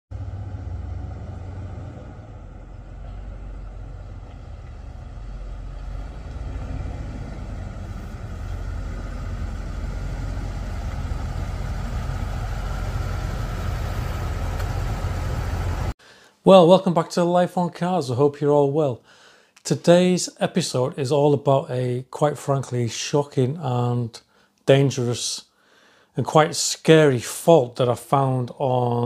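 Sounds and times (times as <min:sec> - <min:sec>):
car engine low rumble: 0:00.1 - 0:16.0.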